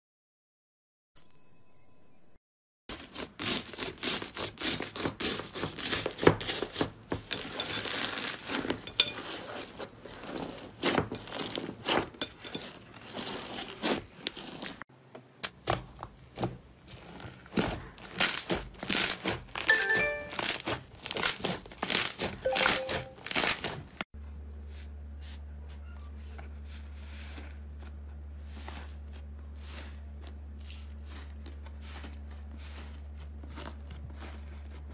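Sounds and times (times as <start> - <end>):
short electronic chime: 1.2 - 2.4, 19.7 - 20.5, 22.5 - 23.3.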